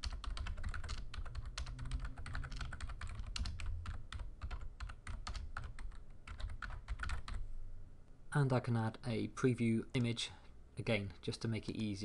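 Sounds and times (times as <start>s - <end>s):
typing on keyboard: 0.0s - 7.4s
low steady hum: 0.0s - 12.0s.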